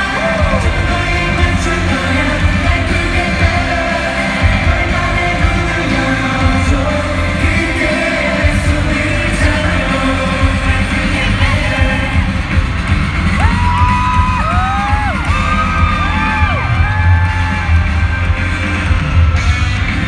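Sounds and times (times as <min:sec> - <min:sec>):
person singing: 0:00.0 - 0:12.5
amplified band with heavy bass: 0:00.0 - 0:20.0.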